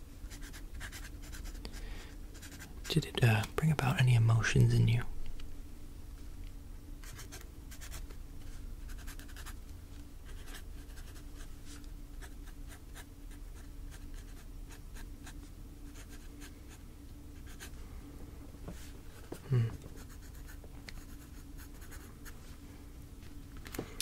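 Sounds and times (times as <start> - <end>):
pen scratching on paper: 10.3 - 11.2.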